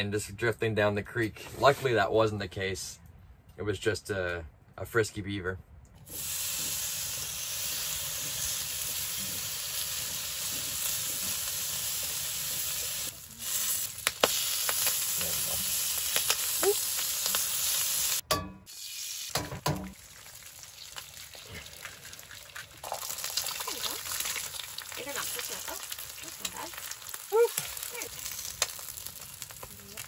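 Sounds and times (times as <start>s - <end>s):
food sizzling in a frying pan: 6.1s - 30.0s.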